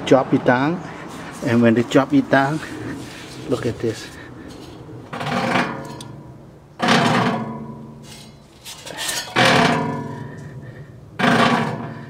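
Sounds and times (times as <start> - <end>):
metal blower wheel clanking: 2.6 - 10.4, 11.2 - 12.0.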